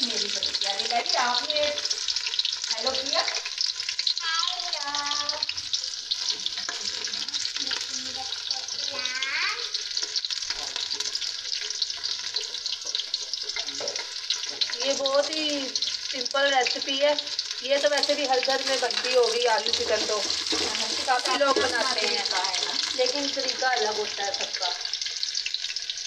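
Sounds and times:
onions sizzling in hot oil: 0:00.0 - 0:26.0
ladle stirring in metal pot: 0:10.0 - 0:25.6.

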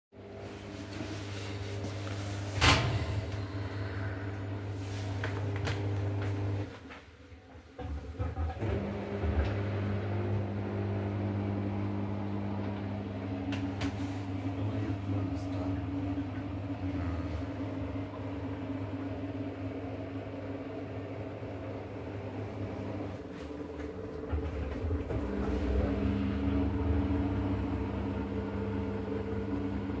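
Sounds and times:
washing machine running: 0:00.2 - 0:30.0
steady motor tone: 0:08.6 - 0:30.0.

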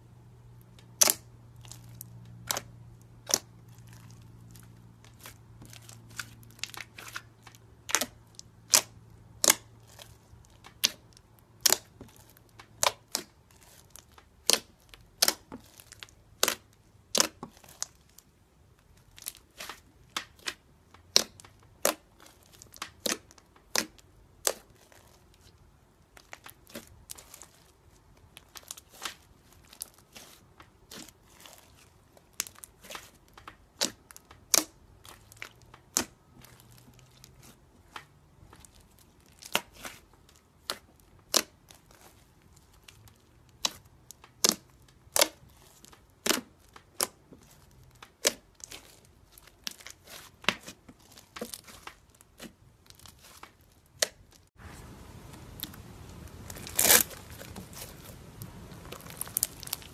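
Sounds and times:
slime clicking and popping: 0:05.1 - 0:17.9, 0:19.2 - 0:24.8, 0:32.3 - 0:38.0, 0:40.6 - 0:42.1, 0:43.5 - 0:49.0.

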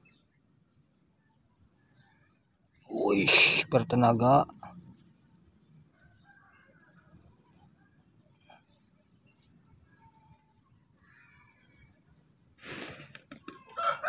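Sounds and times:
faint bird calls: 0:09.5 - 0:12.0.

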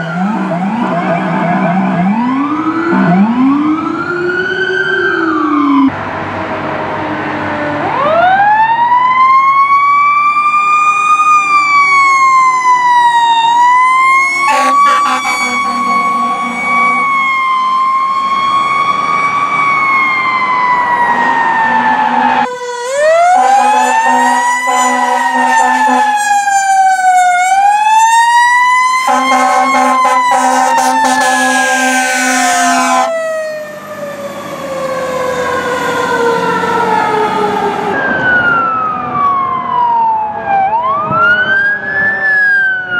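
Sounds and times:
fire engine sirens wailing: 0:00.0 - 0:42.9
air horn blasts: 0:14.0 - 0:17.3, 0:22.0 - 0:26.6, 0:29.0 - 0:33.2.

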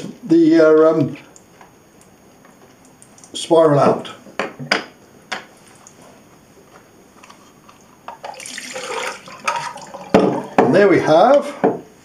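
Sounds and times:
water pouring into sink: 0:08.2 - 0:10.6.

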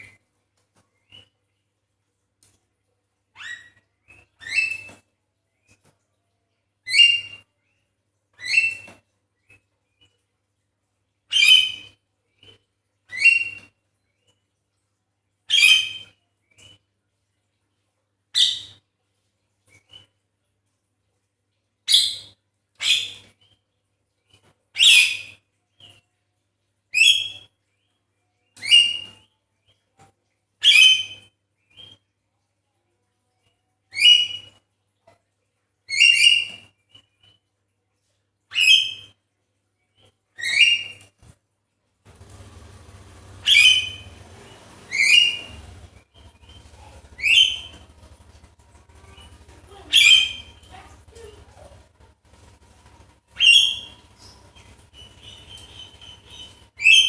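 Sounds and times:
faint low hum: 0:40.9 - 0:57.0
bird harsh calls: 0:42.2 - 0:48.4, 0:49.0 - 0:52.6, 0:53.3 - 0:57.0
faint bird chirps: 0:42.2 - 0:57.0.

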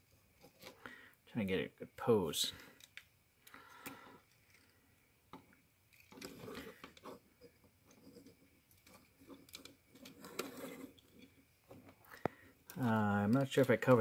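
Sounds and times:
plastic rubbing against plastic: 0:06.0 - 0:14.0.

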